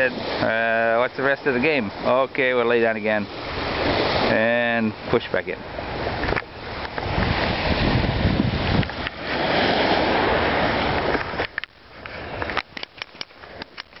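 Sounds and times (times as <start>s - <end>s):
surf washing on beach: 0.0s - 14.0s
wind buffeting microphone: 1.1s - 14.0s
sharp clicks and knocks: 12.4s - 14.0s.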